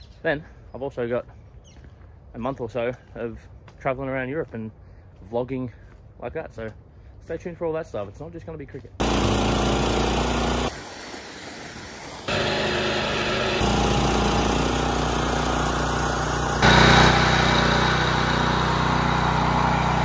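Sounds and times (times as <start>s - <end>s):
machinery engine running: 9.0s - 10.7s, 12.2s - 20.0s.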